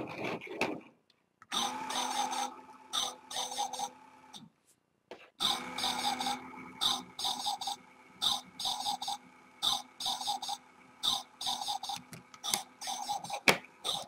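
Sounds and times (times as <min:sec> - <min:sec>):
toy gear motor hum: 0:01.5 - 0:04.4, 0:05.4 - 0:14.0
toy dog yapping: 0:01.9 - 0:03.9, 0:05.4 - 0:14.0.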